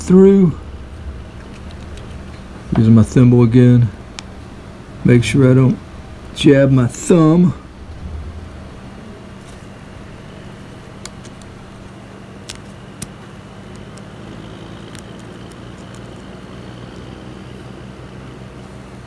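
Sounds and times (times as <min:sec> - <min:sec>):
low background hum: 0:00.0 - 0:19.0
needle clicking through fabric: 0:12.4 - 0:16.5.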